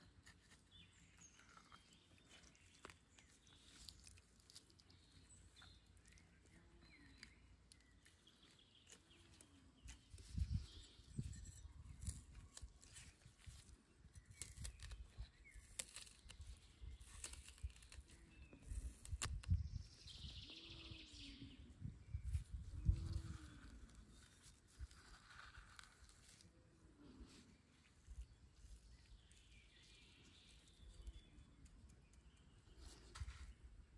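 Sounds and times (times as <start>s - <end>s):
faint bird chirps: 0.4s - 24.9s, 27.0s - 33.7s.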